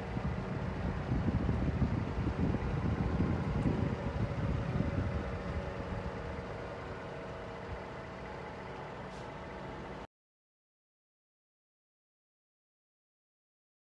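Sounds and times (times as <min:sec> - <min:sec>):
wind buffeting microphone: 0:00.0 - 0:07.9
diesel truck engine idling: 0:00.0 - 0:10.1.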